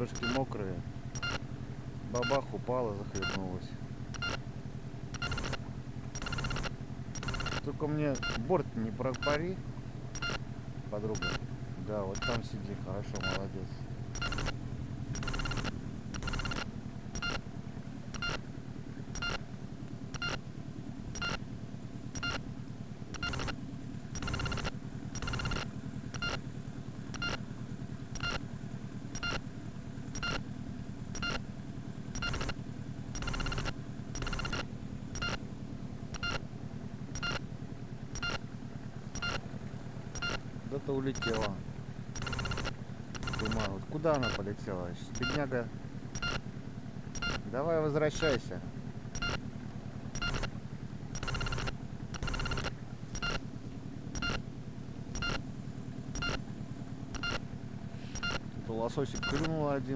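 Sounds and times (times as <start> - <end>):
short electronic beeps: 0.0 - 0.4, 1.1 - 1.4, 2.2 - 2.5, 3.1 - 3.4, 4.1 - 4.4, 5.2 - 5.6, 6.2 - 8.5, 9.1 - 9.4, 10.1 - 10.4, 11.1 - 11.4, 12.1 - 12.5, 13.2 - 13.4, 14.2 - 14.6, 15.2 - 17.4, 18.1 - 18.4, 19.2 - 19.4, 20.1 - 20.4, 21.2 - 21.4, 22.2 - 22.4, 23.2 - 23.6, 24.2 - 26.4, 27.1 - 27.4, 28.2 - 28.4, 29.2 - 29.4, 30.2 - 30.4, 31.2 - 31.4, 32.2 - 32.6, 33.2 - 35.4, 36.1 - 36.4, 37.2 - 37.4, 38.2 - 38.4, 39.2 - 39.4, 40.2 - 40.4, 41.1 - 41.5, 42.2 - 44.5, 45.1 - 45.4, 46.1 - 46.4, 47.1 - 47.4, 49.1 - 49.4, 50.2 - 50.5, 51.2 - 53.4, 54.2 - 54.4, 55.1 - 55.4, 56.2 - 56.4, 57.2 - 57.4, 58.1 - 58.4, 59.2 - 59.5
steady low rumble: 0.0 - 59.3
boat motor humming: 0.0 - 59.9.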